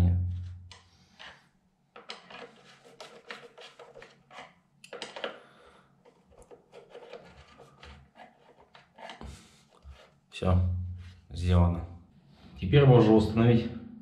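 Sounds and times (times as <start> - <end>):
screwdriver clicking and scraping plastic: 2.0 - 5.4, 6.0 - 9.3.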